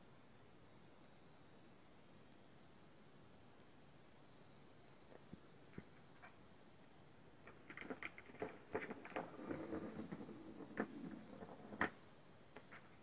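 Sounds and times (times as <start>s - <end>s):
ball rolling and rattling in plastic tube: 7.4s - 12.0s.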